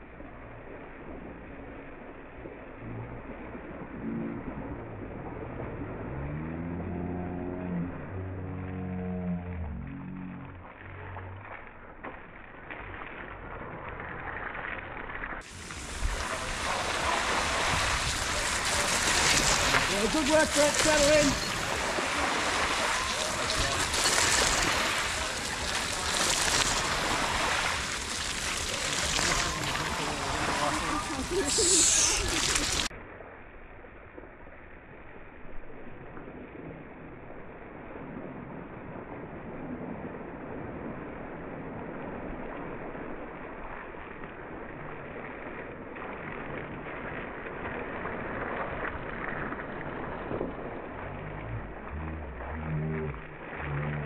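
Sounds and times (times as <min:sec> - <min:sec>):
bike tyres splashing through mud: 0:00.0 - 0:32.9, 0:34.1 - 0:54.0
wind noise on microphone: 0:15.4 - 0:20.0.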